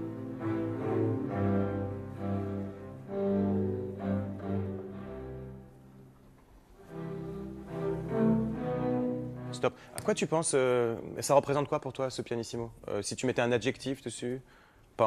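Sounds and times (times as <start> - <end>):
orchestra bowed strings: 0.0 - 11.3.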